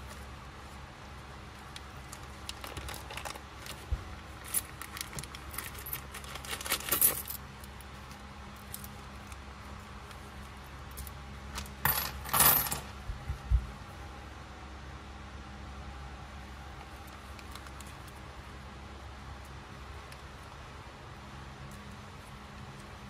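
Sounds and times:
plastic bag rustling: 0.0 - 8.2
coins clinking: 5.4 - 7.4, 11.8 - 12.9.

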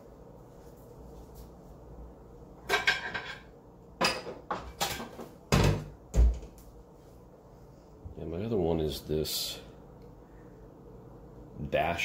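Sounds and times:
metal pans clattering: 2.6 - 5.9.

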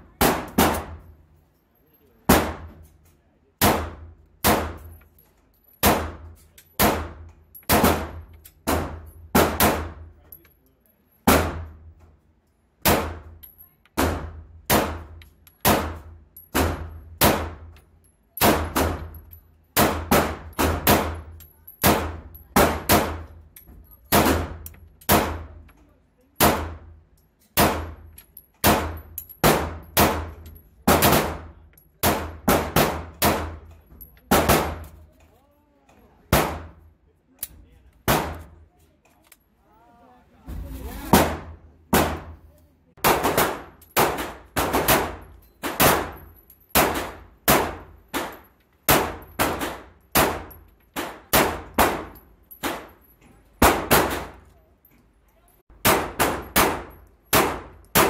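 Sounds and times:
pistol shots echoing indoors: 24.1 - 25.5, 27.6 - 34.9, 38.0 - 38.5, 43.0 - 52.9, 55.8 - 58.0.

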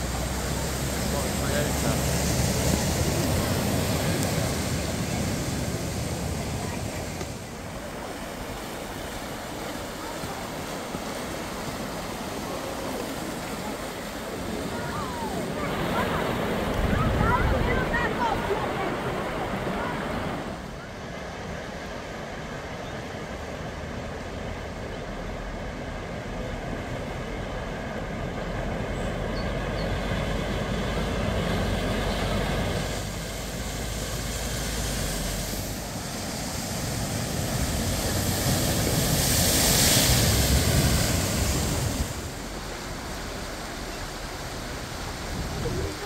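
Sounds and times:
water splashing: 0.0 - 20.7, 29.6 - 46.0.

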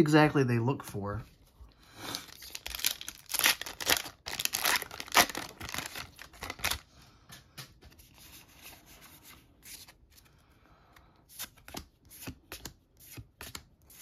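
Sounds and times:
cards rustling: 2.0 - 6.9, 7.7 - 14.0.

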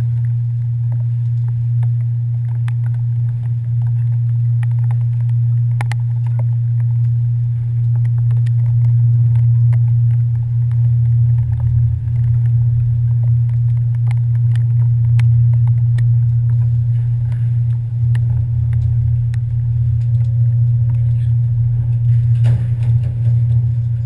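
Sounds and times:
light ticks: 0.0 - 22.1
ferry engines droning: 8.6 - 24.0.

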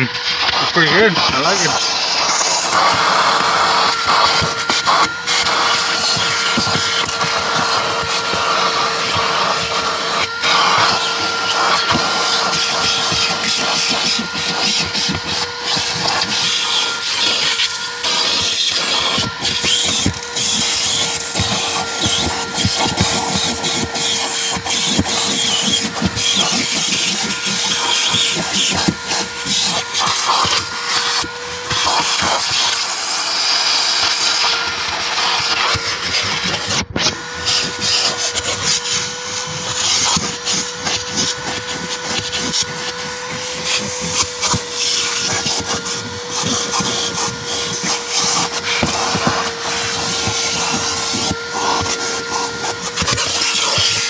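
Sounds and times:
vacuum cleaner motor humming: 0.0 - 54.0
vacuum hose scraping carpet: 0.0 - 54.0.

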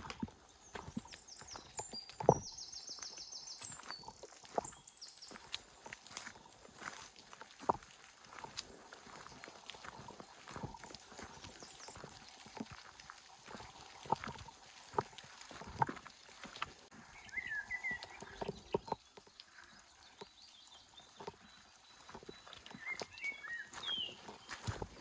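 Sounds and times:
rain falling in woodland: 0.0 - 25.0
bird chirping: 0.1 - 7.0, 16.0 - 25.0
water drips and knocks: 10.6 - 16.9, 18.0 - 19.3.

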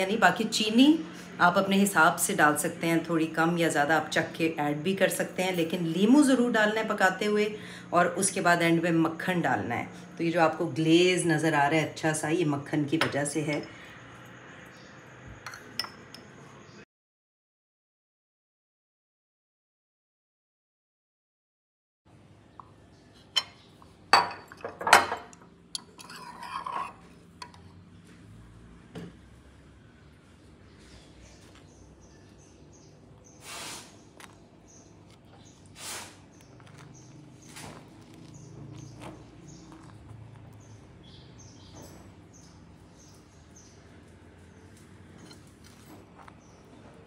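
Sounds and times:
knife clinking against glass jar: 24.2 - 27.6
knife scraping jar: 25.8 - 27.6.

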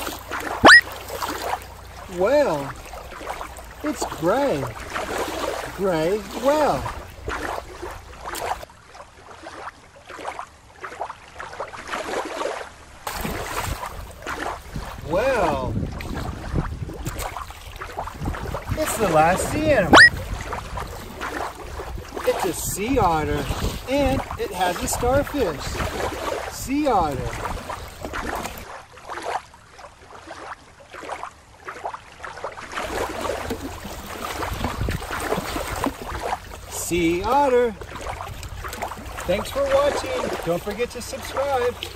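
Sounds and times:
water splashing and lapping: 0.0 - 41.9.

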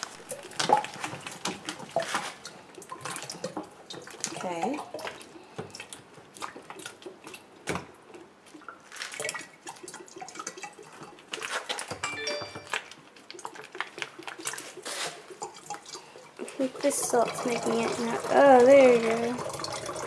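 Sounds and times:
water gurgling in plastic bottle: 13.2 - 20.0
air bubbles popping: 17.0 - 20.0.

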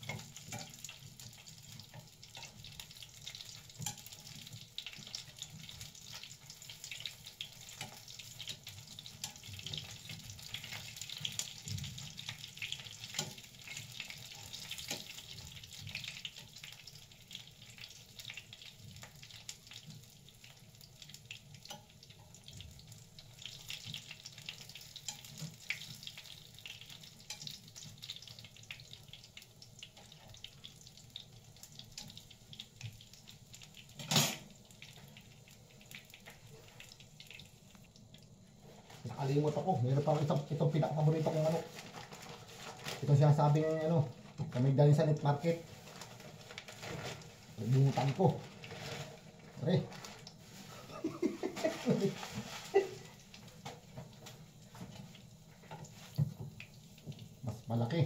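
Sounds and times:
food sizzling in a pan: 0.0 - 58.0.

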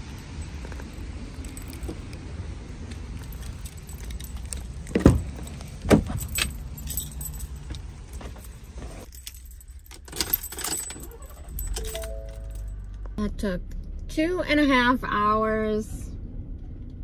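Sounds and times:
car keys jangling: 0.0 - 13.0
key clicking into ignition: 0.0 - 13.0
van door clunks: 4.9 - 6.6.

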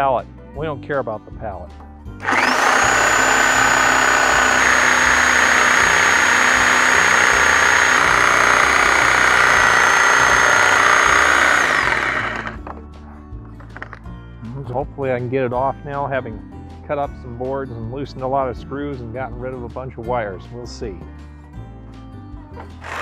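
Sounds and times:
reciprocating saw cutting wood: 2.2 - 12.6, 22.6 - 23.0.

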